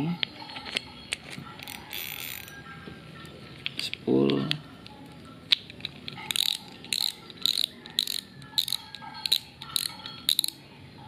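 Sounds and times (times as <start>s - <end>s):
fishing reel ratcheting clicks: 6.3s - 10.6s.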